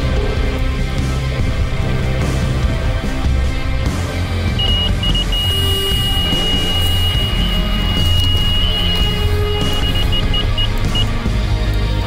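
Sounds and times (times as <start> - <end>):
background music: 0.0 - 12.0
bite alarm beeping: 4.5 - 11.3.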